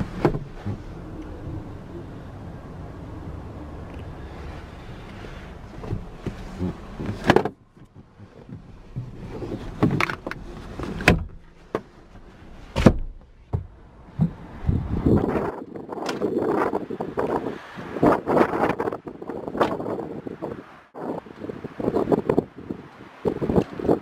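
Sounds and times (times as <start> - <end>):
car door clunks and clicks: 0.1 - 0.6, 5.7 - 11.9, 12.7 - 14.4
car door thump: 12.8 - 14.4
wind noise: 14.1 - 24.0.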